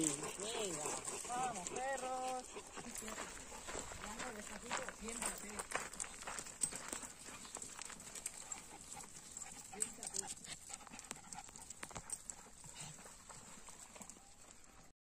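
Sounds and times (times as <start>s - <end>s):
dog paws clicking on stone: 0.0s - 14.9s
faint irregular footsteps: 0.0s - 14.9s.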